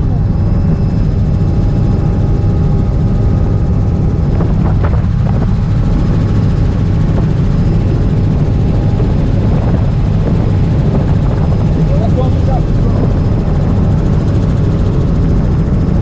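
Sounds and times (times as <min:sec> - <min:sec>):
helicopter engine and rotor: 0:00.0 - 0:16.0.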